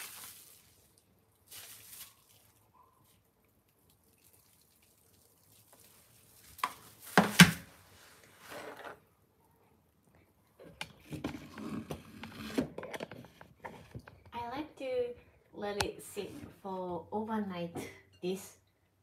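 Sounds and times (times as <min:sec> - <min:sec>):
running water splash: 0:00.0 - 0:02.5.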